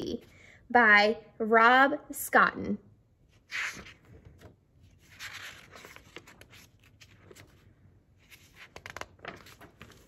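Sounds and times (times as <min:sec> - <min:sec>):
paper rustling: 0:03.5 - 0:10.0.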